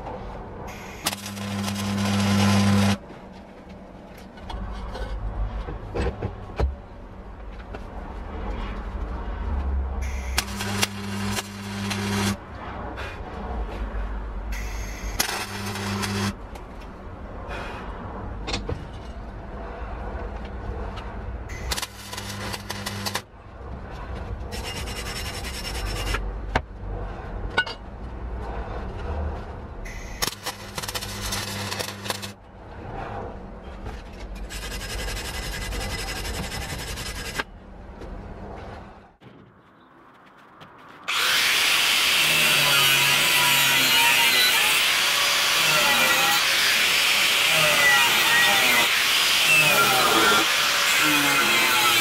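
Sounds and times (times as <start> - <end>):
wire brush scraping steel: 0.7 - 3.0, 10.0 - 12.4, 14.6 - 16.4, 24.5 - 26.2, 29.9 - 32.4, 34.4 - 37.5
arc welding crackling: 0.7 - 3.1, 10.0 - 12.4, 14.6 - 16.4, 21.5 - 23.3, 29.9 - 32.4.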